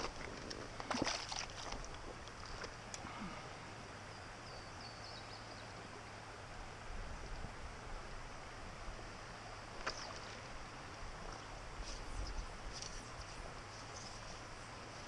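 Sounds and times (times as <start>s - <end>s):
water splashes: 0.0s - 3.6s
creek running over rocks: 0.0s - 4.4s, 5.6s - 15.0s.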